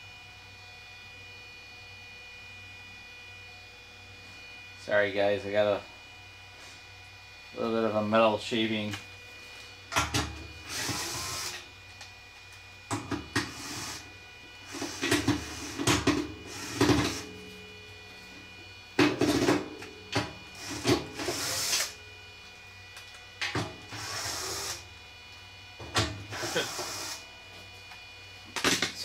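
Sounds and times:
cordless drill bursts: 10.6 - 11.6, 13.5 - 14.0, 16.5 - 17.2, 20.5 - 22.0, 23.9 - 24.8, 26.3 - 27.3.

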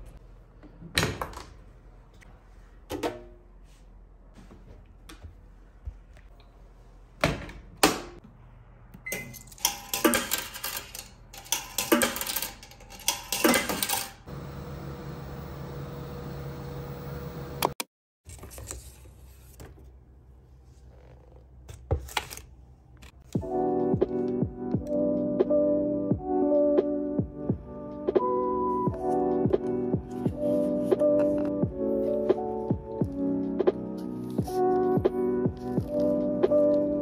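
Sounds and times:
coins clicking into coin slot: 9.1 - 14.3
washing machine hum: 13.8 - 17.8.

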